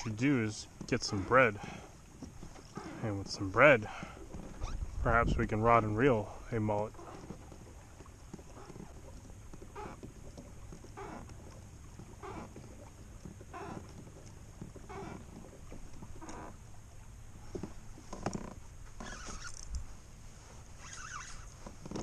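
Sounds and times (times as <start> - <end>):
kayak paddle strokes swishing: 0.0 - 22.0.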